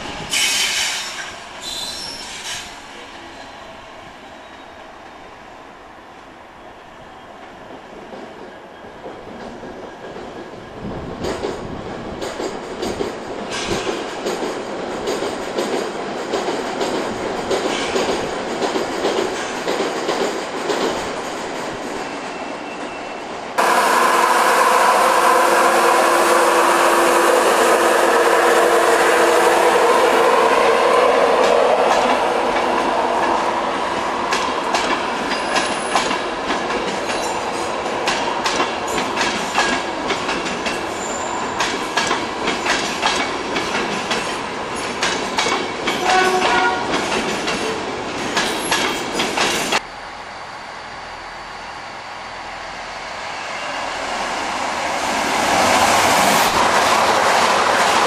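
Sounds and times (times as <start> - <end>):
train with steady whine: 0.0 - 58.0
diesel locomotive running past: 22.0 - 58.0.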